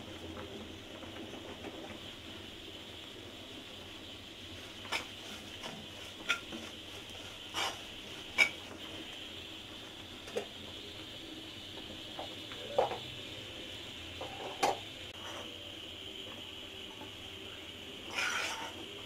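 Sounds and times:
faint steady hiss: 0.0 - 19.0
metal spoon scraping a pan: 7.5 - 8.6, 18.0 - 18.9.

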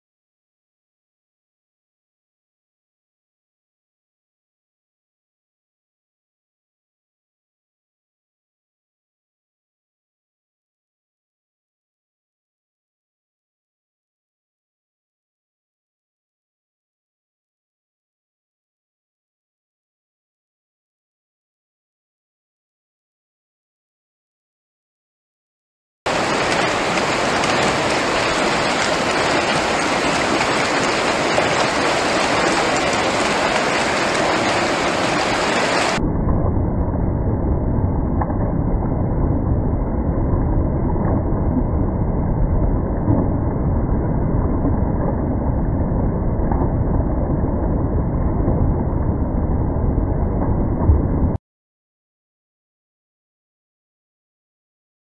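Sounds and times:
water churning around paddle wheel: 26.1 - 36.0.

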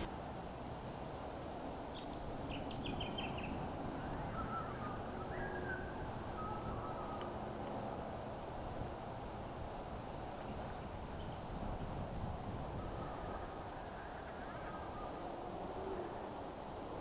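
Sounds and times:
outdoor background hiss: 0.0 - 17.0
lower whistled bird notes: 1.7 - 7.4.

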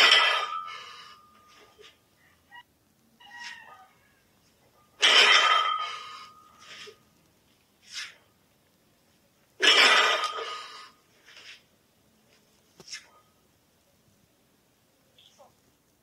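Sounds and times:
barbell landing with clatter: 0.0 - 0.8, 5.0 - 6.2.

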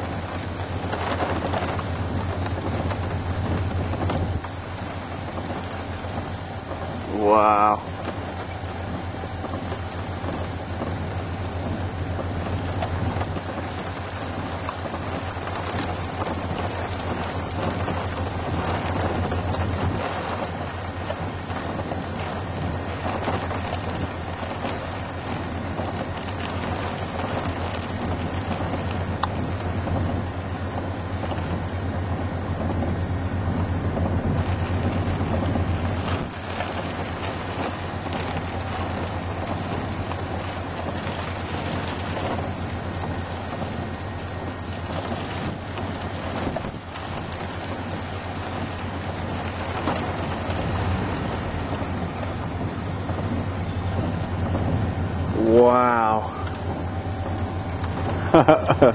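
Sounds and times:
raindrops ticking on surface: 0.0 - 58.9
steady low hum: 0.0 - 58.9
wind buffeting microphone: 0.0 - 58.9
faint ticks: 7.7 - 31.6.

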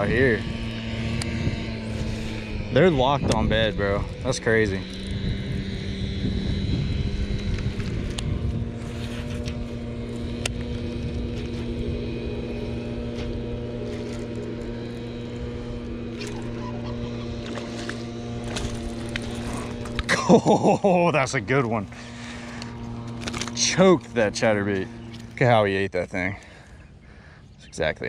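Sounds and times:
wind buffeting microphone: 0.0 - 20.1
machinery motor humming: 0.0 - 27.4.

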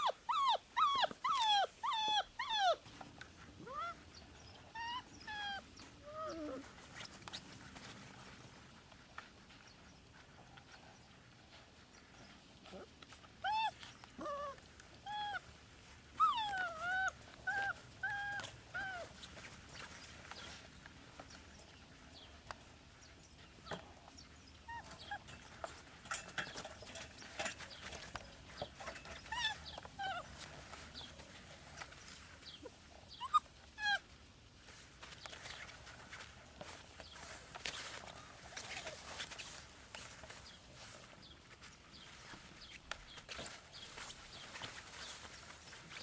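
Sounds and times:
puppy whimpering: 0.0 - 2.8, 3.6 - 4.0, 4.6 - 6.7, 12.7 - 15.4, 16.2 - 19.2, 24.6 - 25.4, 28.8 - 31.1, 32.6 - 34.1.

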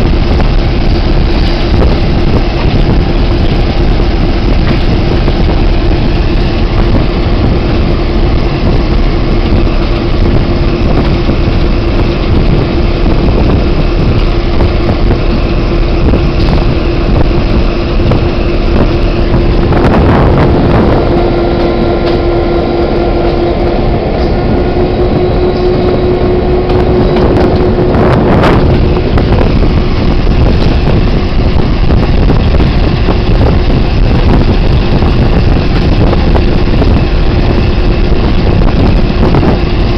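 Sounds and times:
diesel locomotive engine drone: 0.0 - 39.9
wheels rumbling on rails: 0.0 - 39.9
wind on microphone: 0.0 - 39.9.

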